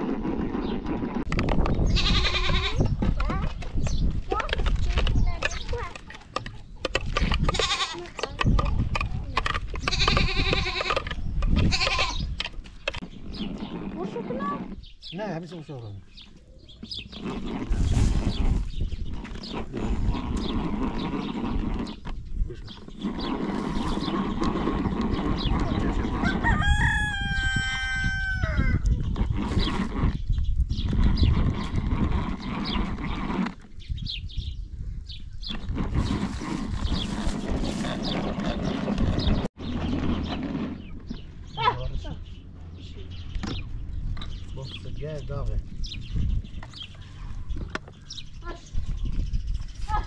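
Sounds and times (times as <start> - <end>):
livestock bleating: 2.0 - 2.8, 7.5 - 8.0
rooster crowing: 26.2 - 28.8.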